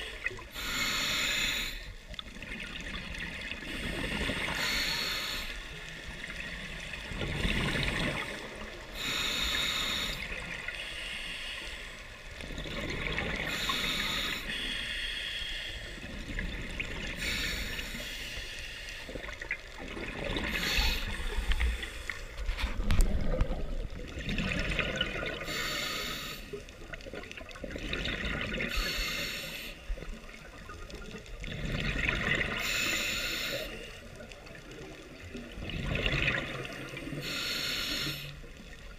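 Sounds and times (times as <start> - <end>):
diver breathing through regulator: 0.0 - 2.0, 3.6 - 5.9, 8.4 - 12.2, 13.4 - 16.4, 17.0 - 19.3, 20.4 - 23.0, 25.3 - 26.7, 28.6 - 29.9, 32.5 - 34.0, 37.1 - 38.5.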